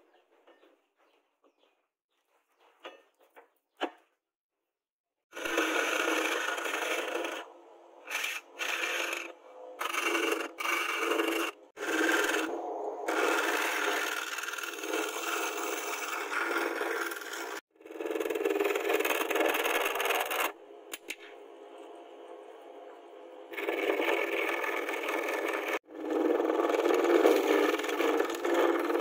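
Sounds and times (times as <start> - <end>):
file rasping on turning wood: 5.4 - 7.5, 8.1 - 20.5.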